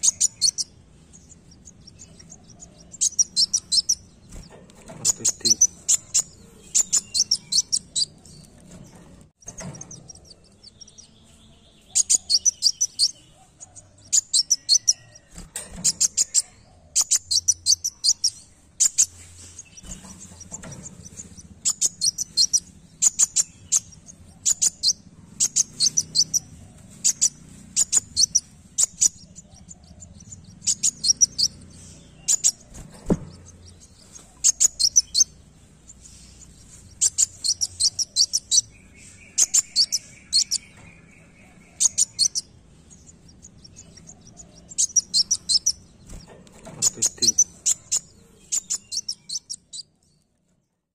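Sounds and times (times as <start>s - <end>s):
bird chirping trills: 0.0s - 50.9s.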